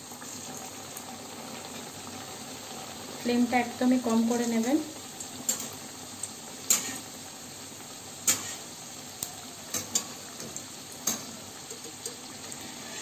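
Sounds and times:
dough sizzling in hot oil: 0.0s - 13.0s
metal spatula clicking on pan: 9.7s - 12.2s.

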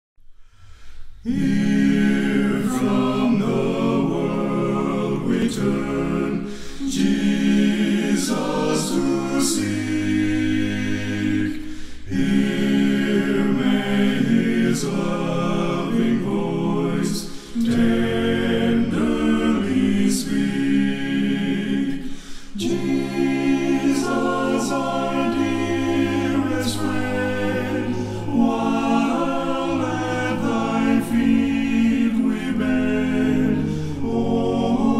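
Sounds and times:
a cappella group singing: 1.0s - 34.9s.

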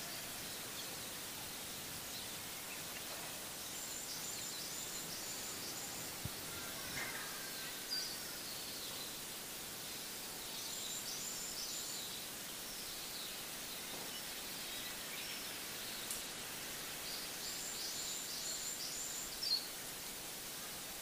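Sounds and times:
small birds chirping: 0.0s - 19.9s
outdoor hiss: 0.0s - 21.0s.

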